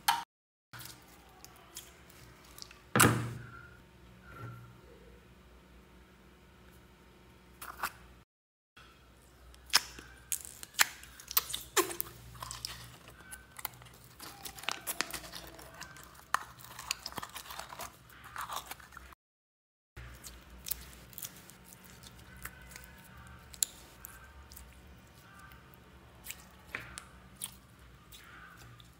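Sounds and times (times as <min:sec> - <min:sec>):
slime crackling and popping: 0:09.6 - 0:13.0, 0:13.6 - 0:18.0, 0:20.2 - 0:24.7.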